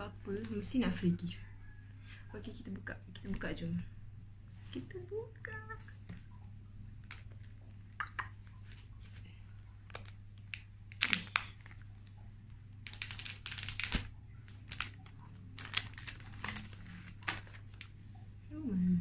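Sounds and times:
plastic wrap crinkling: 7.0s - 18.1s.

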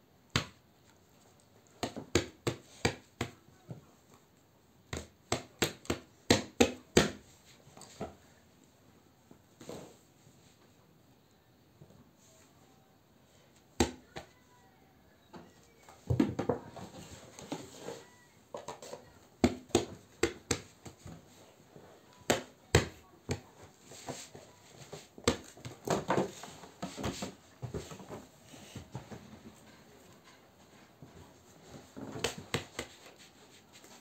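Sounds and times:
objects knocking and tapping: 15.4s - 17.9s, 18.5s - 21.2s.

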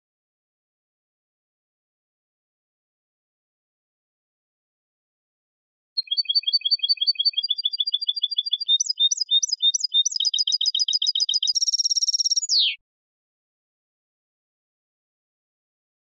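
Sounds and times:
goldfinch singing high trills: 6.0s - 12.8s.

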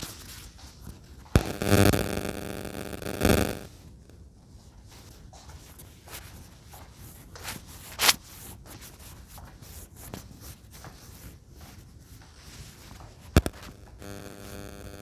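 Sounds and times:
soft clicks: 13.4s - 14.0s.

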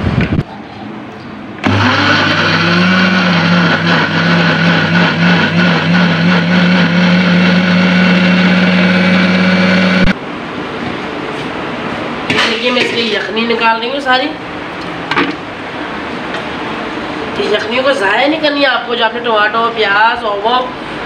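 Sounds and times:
electric blender running: 1.6s - 10.2s.

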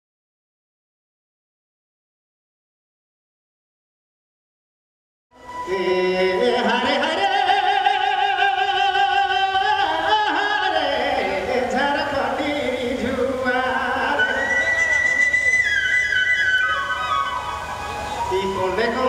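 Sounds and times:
man singing folk song through pa: 5.5s - 15.6s, 18.2s - 19.0s.

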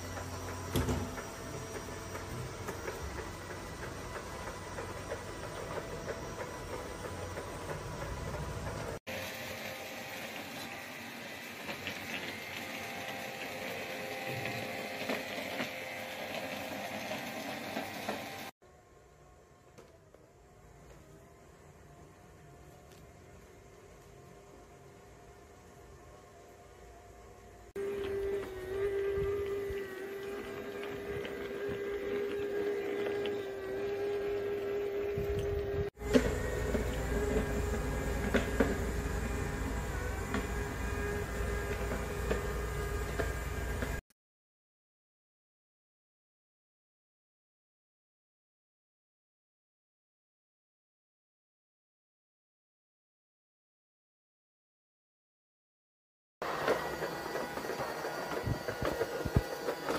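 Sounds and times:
robot vacuum cleaner whirring: 0.0s - 44.0s, 56.4s - 59.9s.

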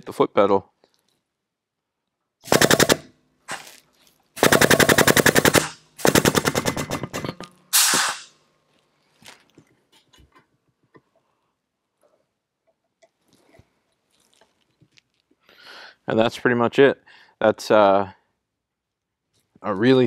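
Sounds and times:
air hiss: 7.7s - 8.4s.

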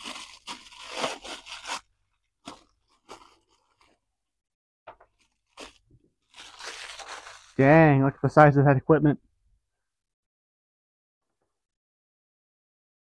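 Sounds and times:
paper wrapping crinkling and tearing: 0.0s - 4.0s, 5.1s - 7.6s.

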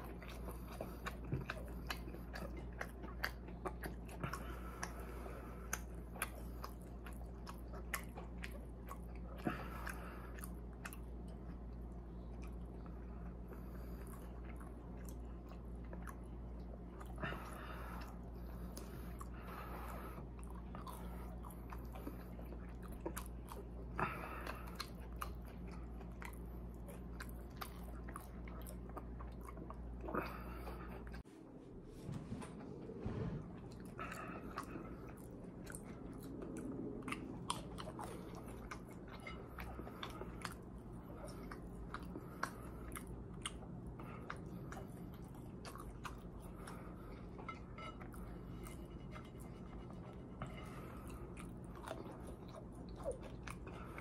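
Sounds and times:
person chewing food: 0.0s - 31.3s, 32.2s - 54.0s
low hum: 0.0s - 54.0s.

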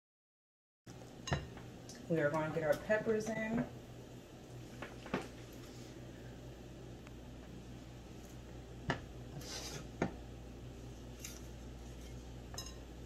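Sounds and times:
steady low hum: 0.9s - 13.0s
pan scraping: 9.3s - 10.0s.

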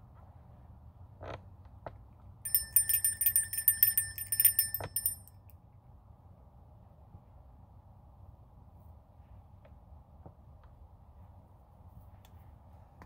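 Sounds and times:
handbell ringing rapidly: 2.5s - 5.3s.

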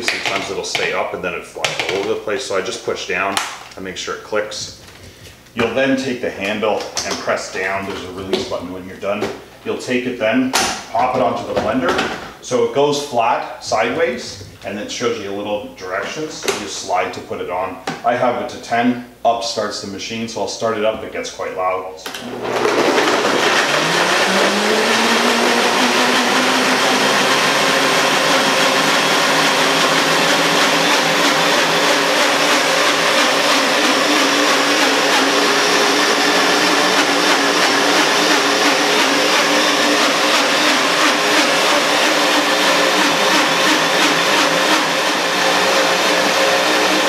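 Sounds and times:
blender motor whining: 22.1s - 47.0s.

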